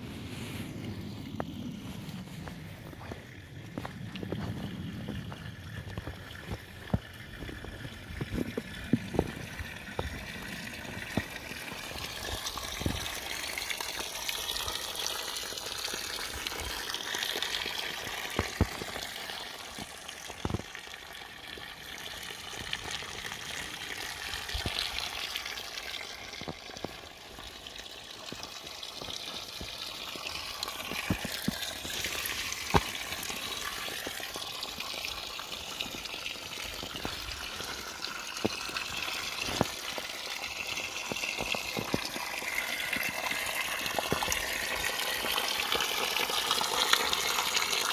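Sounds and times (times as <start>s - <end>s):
small stream running: 0.0s - 47.9s.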